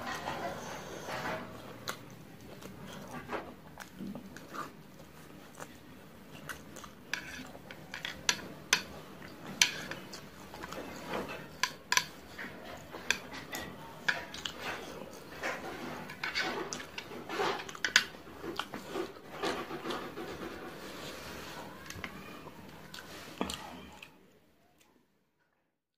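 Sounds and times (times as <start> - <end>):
slurping and chewing noodles: 0.0 - 24.1.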